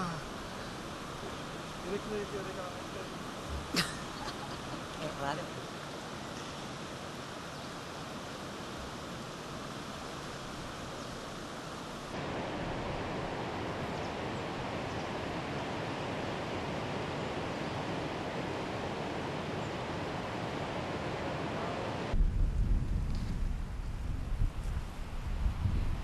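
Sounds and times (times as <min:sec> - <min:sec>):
floodwater rushing: 0:00.0 - 0:22.2
wind buffeting microphone: 0:12.2 - 0:26.0.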